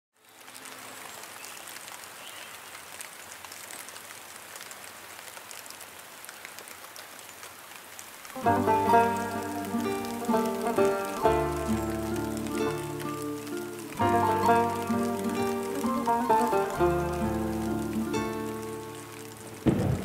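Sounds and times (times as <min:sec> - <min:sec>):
rain patter: 0:00.1 - 0:20.0
plucked string music: 0:08.4 - 0:20.0.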